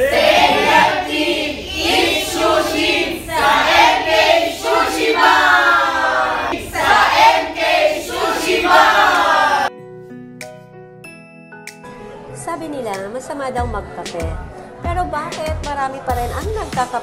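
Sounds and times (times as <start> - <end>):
group chanting in unison: 0.0 - 9.7.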